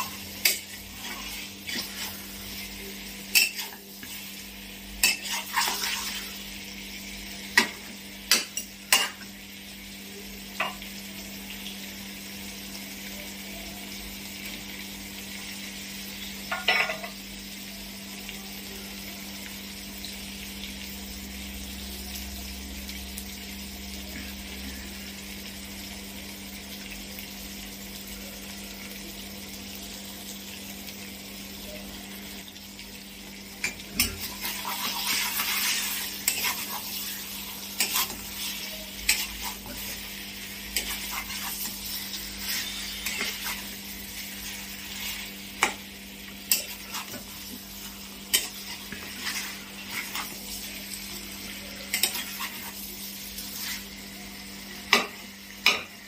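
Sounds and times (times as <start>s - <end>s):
food sizzling in a pan: 0.0s - 56.0s
spatula scraping and knocking pan: 34.0s - 40.0s, 40.7s - 43.7s.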